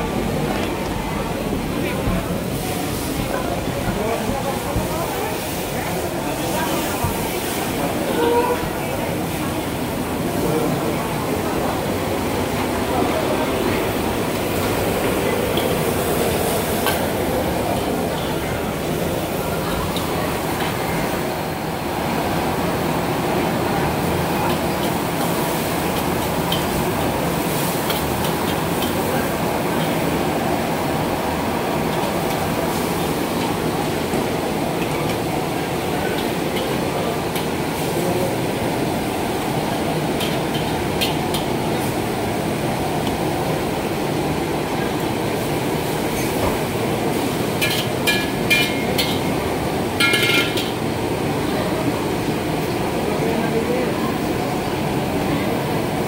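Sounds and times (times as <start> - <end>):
gas burner roaring: 0.0 - 56.0
ladle clinking against wok: 47.6 - 49.3, 50.0 - 50.8.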